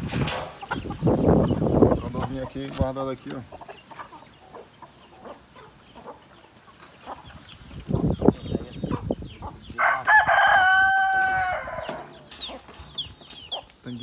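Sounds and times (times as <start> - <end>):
chickens clucking: 0.0 - 14.0
chicks peeping: 0.0 - 14.0
rooster crowing: 9.8 - 12.1.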